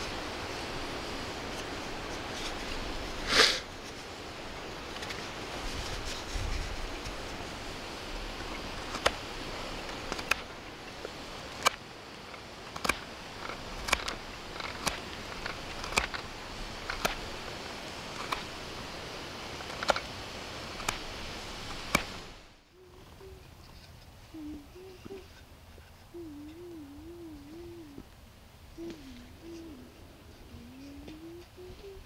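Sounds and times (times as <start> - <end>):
steady background hiss: 0.0 - 32.0
knife carving wood: 8.8 - 9.2, 9.9 - 10.5, 12.7 - 18.6, 20.7 - 21.1.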